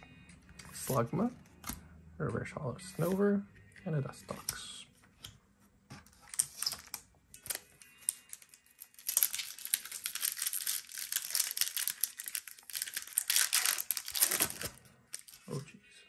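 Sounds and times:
foil wrapper crinkling: 0:06.3 - 0:15.6.

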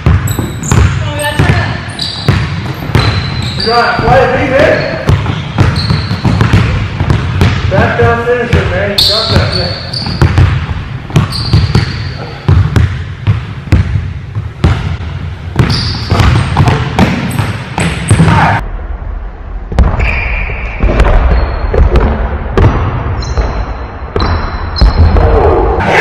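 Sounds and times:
basketball bouncing on hardwood: 0:00.0 - 0:04.3, 0:05.0 - 0:08.7, 0:09.3 - 0:18.5
sneakers squeaking on court: 0:00.0 - 0:18.5, 0:19.9 - 0:21.9, 0:23.2 - 0:25.2.

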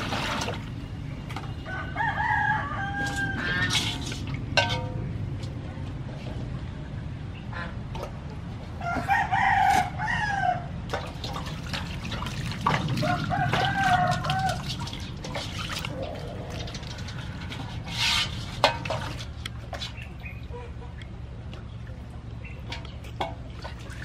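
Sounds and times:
water sloshing in a metal basin: 0:00.0 - 0:01.7, 0:02.8 - 0:06.6, 0:07.6 - 0:10.0, 0:10.8 - 0:24.0
rooster crowing: 0:01.6 - 0:03.7, 0:08.8 - 0:10.7, 0:13.0 - 0:14.7.

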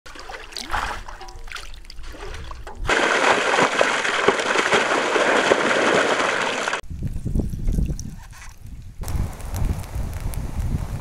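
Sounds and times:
fish splashing in water: 0:00.1 - 0:06.8
water pouring into basket: 0:00.1 - 0:06.8.

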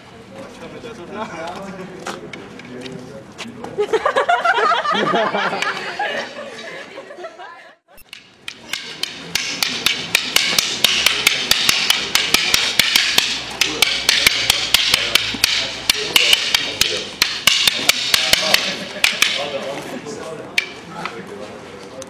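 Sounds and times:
fighting sticks clacking: 0:08.0 - 0:19.7, 0:20.5 - 0:21.2.

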